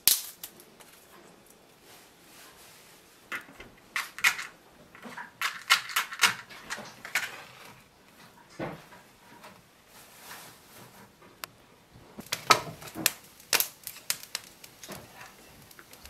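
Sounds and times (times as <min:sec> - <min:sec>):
match struck and flaring: 0:12.2 - 0:16.0.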